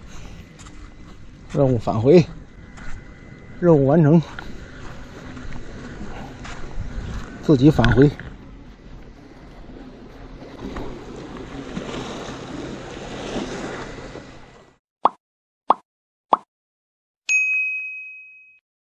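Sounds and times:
outdoor background noise: 0.0s - 14.8s
bright ding: 17.3s - 18.6s.

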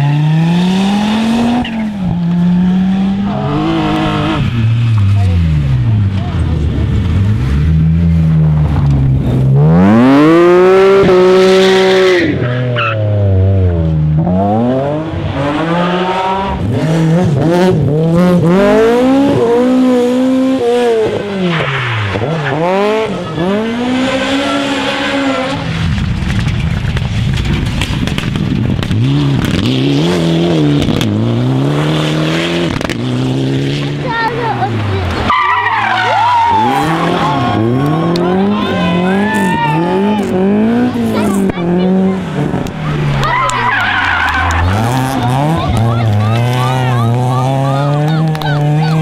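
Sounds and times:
rally car engine revving: 0.0s - 49.0s
rushing noise: 42.2s - 46.6s.

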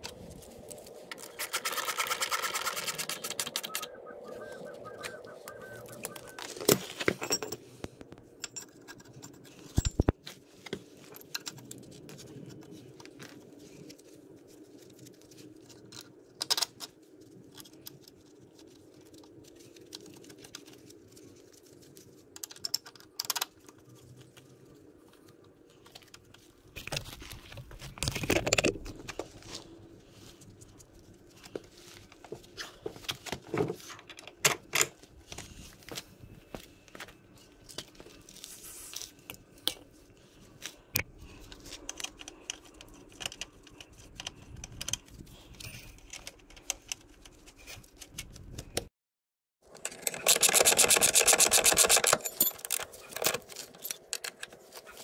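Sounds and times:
rustling and scraping: 0.0s - 22.6s, 23.5s - 48.8s, 52.2s - 55.0s
tools clicking and knocking: 6.0s - 10.1s, 49.7s - 54.8s.

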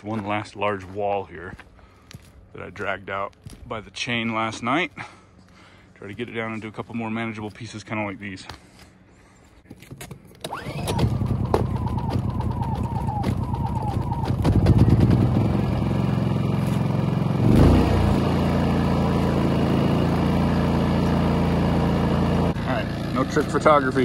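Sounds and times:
generator engine running: 10.4s - 24.0s.

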